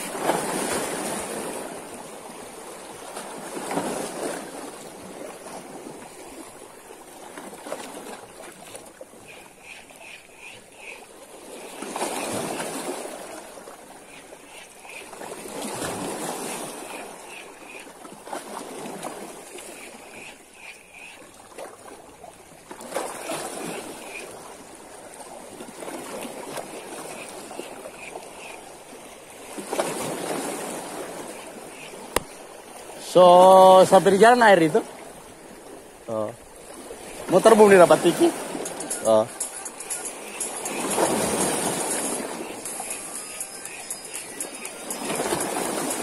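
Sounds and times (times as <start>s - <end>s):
seawater washing and splashing: 0.0s - 46.0s
fishing reel ticking: 38.4s - 46.0s.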